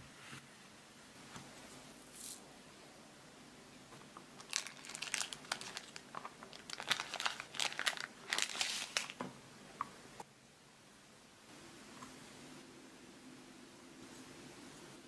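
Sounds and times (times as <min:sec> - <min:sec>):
plastic wrapper crinkling: 0:04.4 - 0:09.2.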